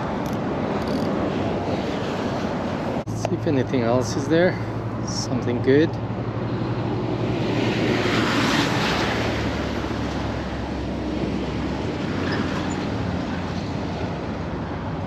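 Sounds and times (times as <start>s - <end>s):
road traffic rumbling: 0.0s - 15.0s.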